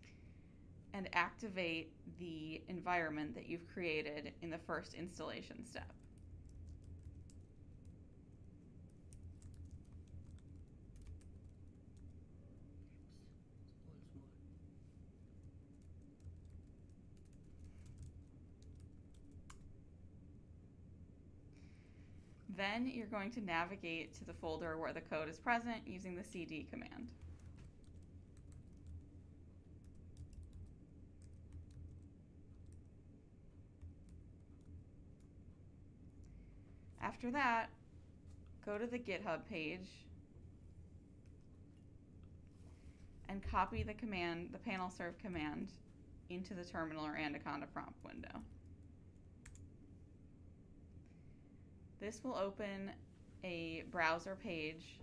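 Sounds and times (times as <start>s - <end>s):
low steady hum: 0.0s - 55.0s
computer keyboard typing: 5.9s - 7.9s, 8.9s - 12.2s, 15.4s - 19.7s, 27.4s - 29.1s, 29.8s - 32.9s, 49.4s - 49.7s.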